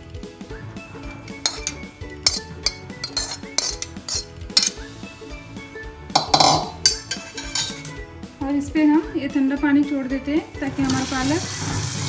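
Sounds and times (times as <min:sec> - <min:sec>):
background music: 0:00.0 - 0:12.0
utensils clinking against a pot: 0:01.4 - 0:04.9, 0:06.2 - 0:08.0.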